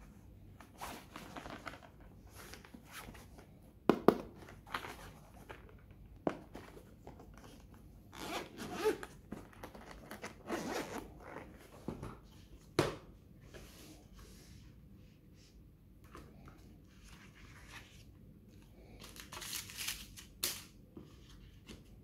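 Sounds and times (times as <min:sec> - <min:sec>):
zipper rasping: 0:08.2 - 0:09.0, 0:10.4 - 0:11.4.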